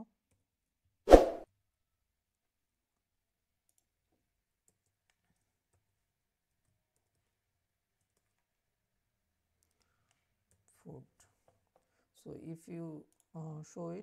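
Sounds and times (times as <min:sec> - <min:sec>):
faint keyboard typing clicks: 0:03.6 - 0:03.9, 0:04.6 - 0:08.5, 0:09.5 - 0:12.1, 0:13.0 - 0:13.4.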